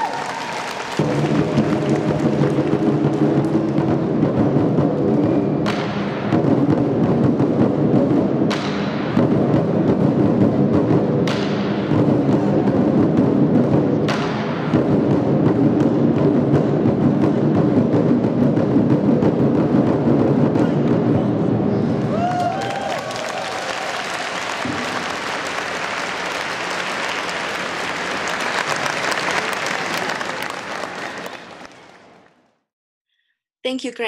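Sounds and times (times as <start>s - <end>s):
barrel drums beaten fast: 0.9s - 21.7s.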